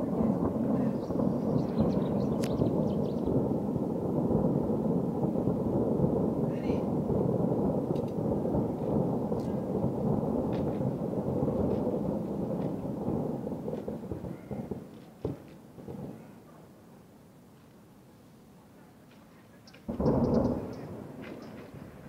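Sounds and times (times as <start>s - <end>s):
distant fireworks barrage: 0.0s - 17.1s, 19.0s - 22.0s
sharp firework bang: 6.1s - 16.4s, 19.9s - 22.0s.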